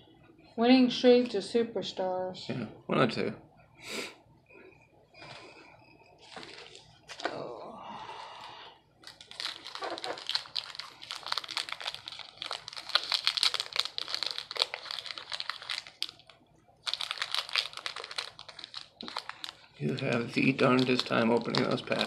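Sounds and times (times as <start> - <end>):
plastic wrapper crinkling: 6.2 - 7.3, 9.0 - 22.0.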